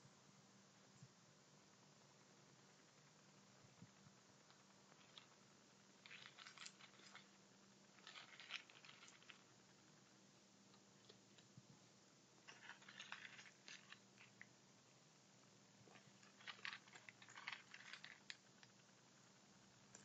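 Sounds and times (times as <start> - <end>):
low steady hum: 0.0 - 20.0
raccoon crunching dry pet food: 6.0 - 7.3, 15.9 - 18.4.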